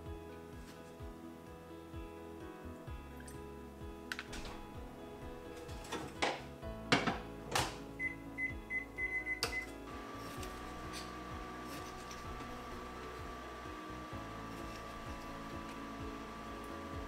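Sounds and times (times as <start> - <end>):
soft background music: 0.0 - 17.0
microwave oven humming: 7.5 - 17.0
short high button beeps: 8.0 - 9.7.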